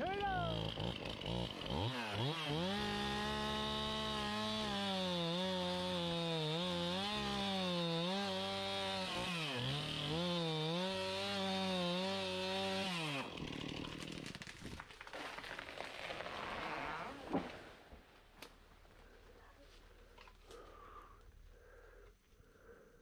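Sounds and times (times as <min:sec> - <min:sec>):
chainsaw cutting wood: 0:00.0 - 0:17.7.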